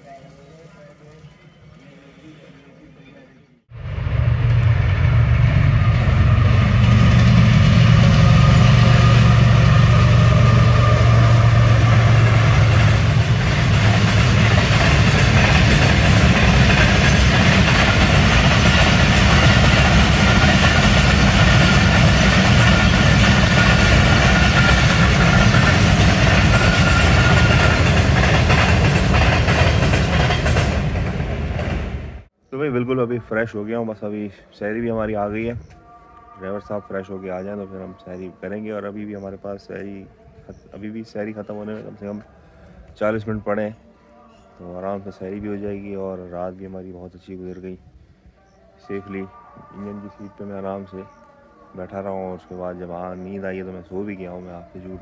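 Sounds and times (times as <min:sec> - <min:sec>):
diesel locomotive drone: 0:03.7 - 0:32.4
train coaches rumbling on rails: 0:03.8 - 0:32.3.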